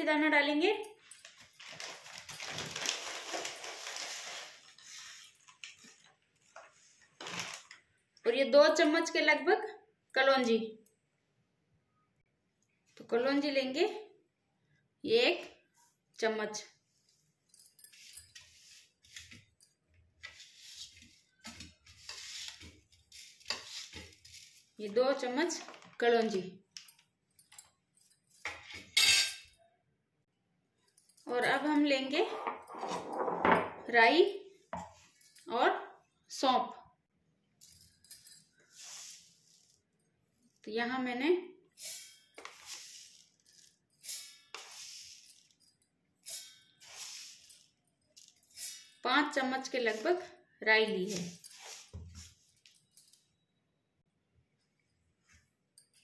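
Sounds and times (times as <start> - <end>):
spoon scraping seeds: 3.4 - 5.5, 17.8 - 19.6, 20.2 - 25.0, 38.6 - 39.8, 41.8 - 45.6, 46.2 - 50.3, 50.9 - 52.5
seeds rattling into steel jar: 41.8 - 45.6, 46.2 - 49.0
seeds rattling into glass bowl: 46.2 - 49.0.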